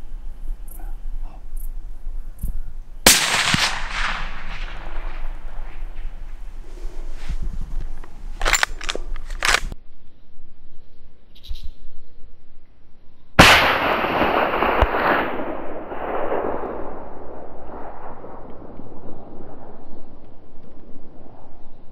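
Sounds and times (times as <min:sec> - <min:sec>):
rifle shot with rolling echo: 0:03.0 - 0:06.6, 0:13.4 - 0:20.1.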